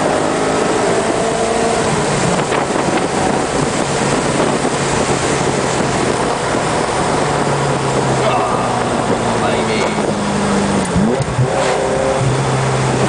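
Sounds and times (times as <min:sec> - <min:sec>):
wind and road noise: 0:00.0 - 0:13.0.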